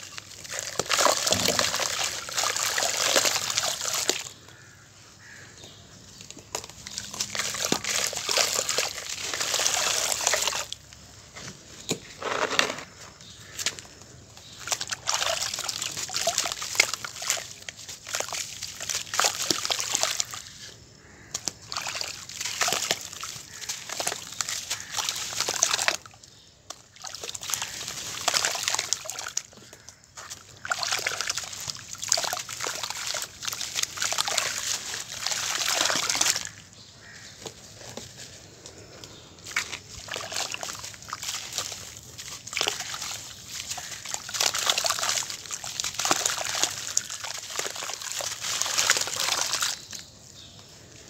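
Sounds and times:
slurry sloshing and splashing: 0.0s - 4.4s, 6.5s - 10.8s, 14.4s - 20.6s, 21.4s - 26.1s, 26.8s - 37.2s, 39.4s - 50.0s.

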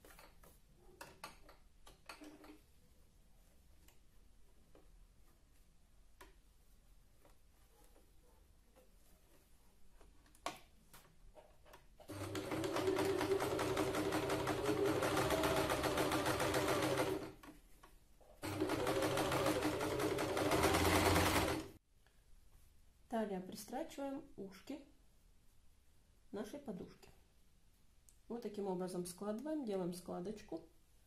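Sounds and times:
sewing machine stitching: 12.1s - 17.5s, 18.4s - 21.8s.

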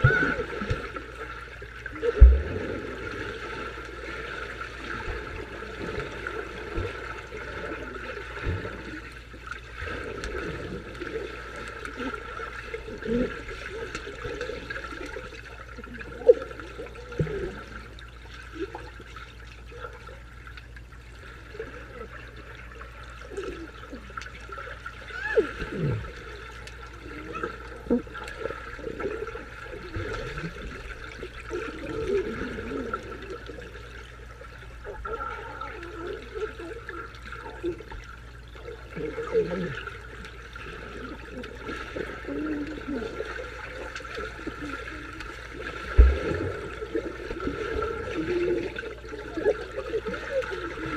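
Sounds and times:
underwater sloshing and bubbling: 0.0s - 50.9s
sharp knock underwater: 2.2s - 2.7s.

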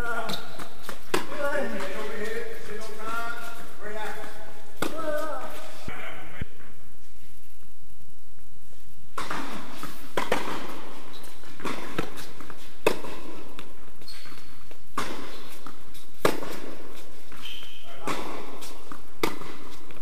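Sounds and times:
tennis ball hit by rackets: 0.2s - 2.5s, 4.1s - 5.3s, 9.2s - 13.8s, 14.9s - 20.0s
tennis ball bouncing on hard court: 0.2s - 3.0s, 9.2s - 20.0s.

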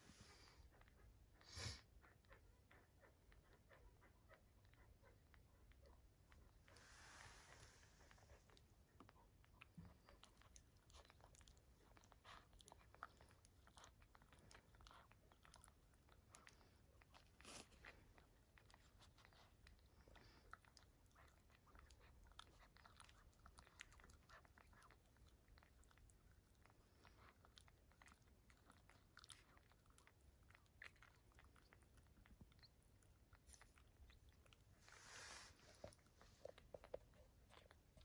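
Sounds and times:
puppies suckling clicks: 0.6s - 6.7s, 7.5s - 34.8s, 35.5s - 38.0s
soft hiss: 6.5s - 8.8s, 34.6s - 37.1s.

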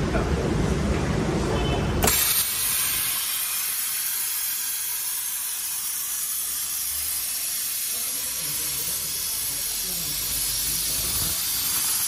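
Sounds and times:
plasma cutter hissing: 2.0s - 12.0s.

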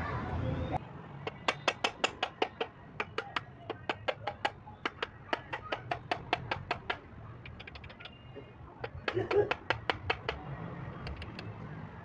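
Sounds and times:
rapid light hammer taps: 1.3s - 8.2s, 8.8s - 10.4s, 11.0s - 11.5s.

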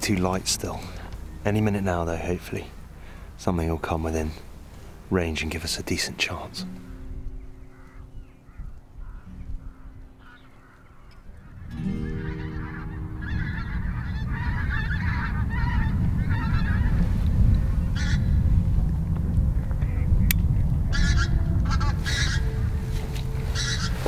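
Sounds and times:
geese honking overhead: 0.0s - 24.0s
low wind rumble: 0.0s - 24.0s.

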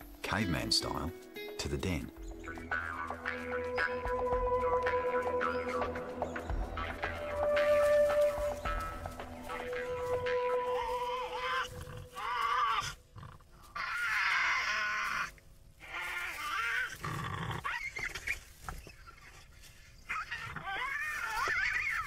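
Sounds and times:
animals screeching and growling: 9.5s - 22.0s.

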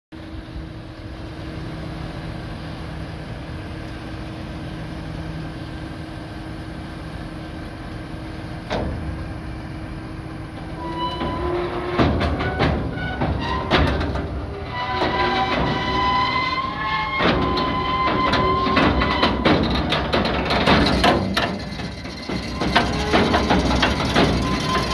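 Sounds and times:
tractor engine running: 0.2s - 24.9s
high squealing whine: 9.2s - 24.9s
heavy metal clanks: 10.5s - 24.9s.

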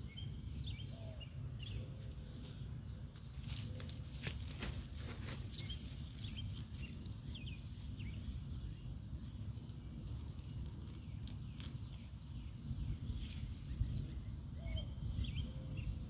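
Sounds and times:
faint bird chirps: 0.0s - 4.1s, 5.2s - 16.0s
hands digging in soil and mulch: 1.5s - 14.4s.

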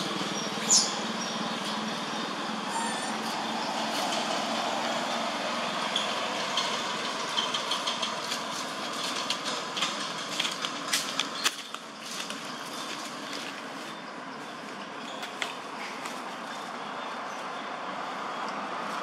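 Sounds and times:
footsteps on dry leaves: 8.2s - 16.8s.

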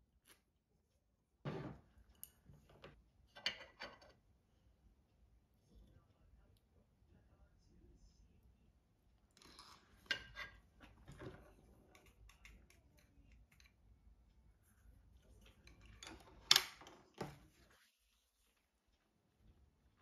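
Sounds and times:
chopsticks clinking on dishes: 11.9s - 13.8s.

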